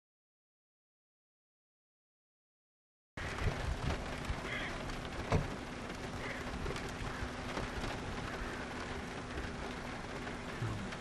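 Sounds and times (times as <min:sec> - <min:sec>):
hiss with low rumble: 0:03.2 - 0:11.0.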